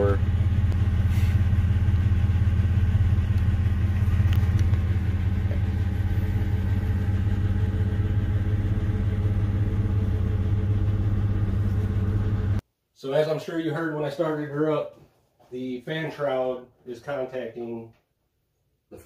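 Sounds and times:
car engine idling: 0.0s - 12.6s.

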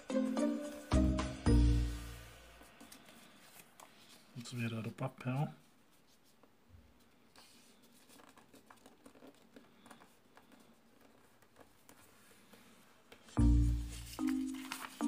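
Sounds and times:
paper rustling and creasing: 2.6s - 5.0s, 5.9s - 15.0s.

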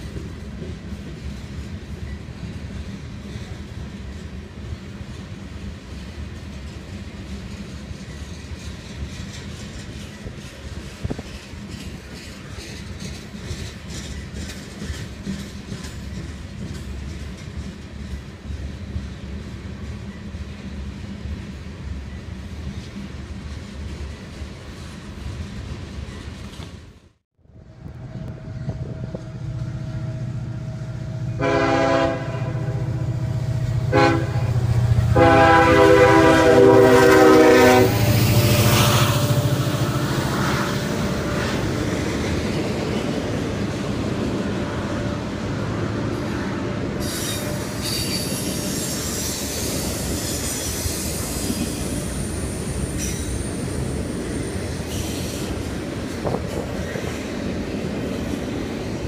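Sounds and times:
diesel locomotive passing: 0.0s - 59.0s
train wheel squeal: 6.4s - 19.1s, 46.1s - 57.2s
locomotive horn blasts: 31.3s - 33.2s, 33.8s - 41.4s.

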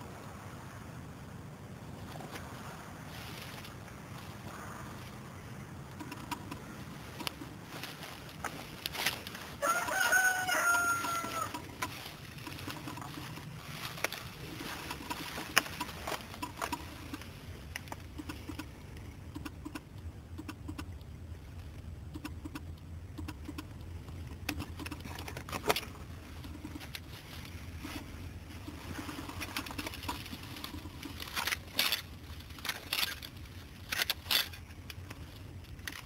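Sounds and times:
rooster crowing: 9.6s - 11.7s.

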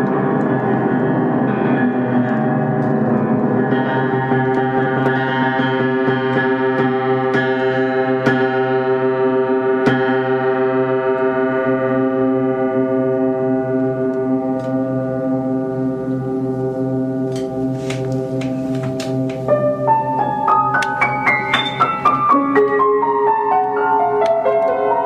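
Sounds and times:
piano chord ringing: 0.0s - 25.0s
light high piano notes: 16.0s - 25.0s.

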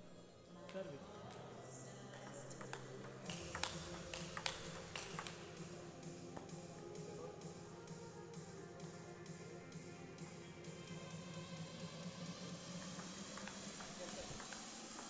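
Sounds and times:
table tennis ball clicks: 2.2s - 5.4s, 12.9s - 15.0s.

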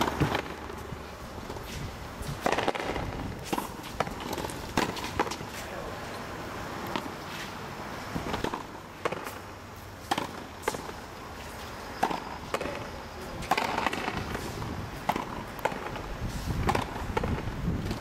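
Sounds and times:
ball cracking off rackets: 0.0s - 0.8s, 2.3s - 5.7s, 8.1s - 9.4s, 10.0s - 11.0s, 12.0s - 16.0s, 16.6s - 18.0s
ball smacking concrete wall: 2.4s - 5.4s, 8.2s - 9.4s, 10.1s - 10.9s.

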